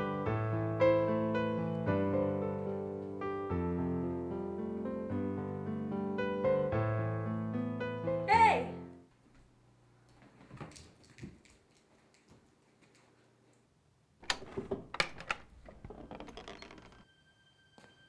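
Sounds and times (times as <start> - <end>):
door latch clicking and rattling: 14.2 - 17.0.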